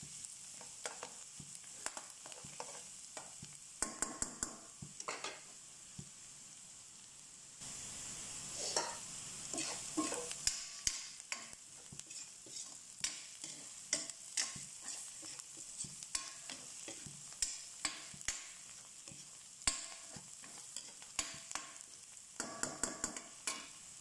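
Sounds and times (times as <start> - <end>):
garlic and onion sizzling: 0.0 - 24.0
metal spatula scraping a pan: 1.8 - 4.2, 8.5 - 21.8.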